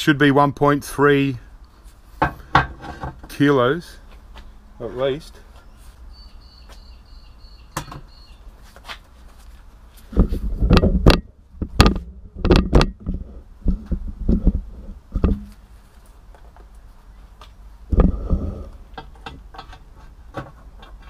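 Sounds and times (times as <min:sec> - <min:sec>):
irregular knocks and clunks: 0:10.1 - 0:15.5, 0:17.9 - 0:21.0.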